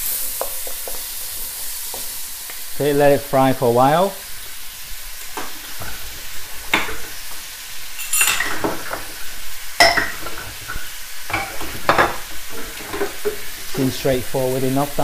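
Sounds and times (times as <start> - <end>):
ribs sizzling in a wok: 0.0 - 15.0
wooden spatula scraping pan: 8.0 - 14.2.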